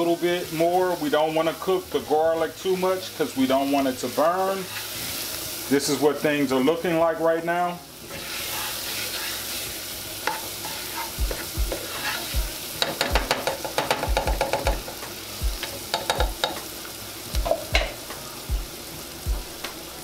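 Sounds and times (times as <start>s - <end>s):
onions sizzling in grease: 0.0s - 20.0s
spoon scraping a metal pot: 8.1s - 9.6s, 10.2s - 12.3s.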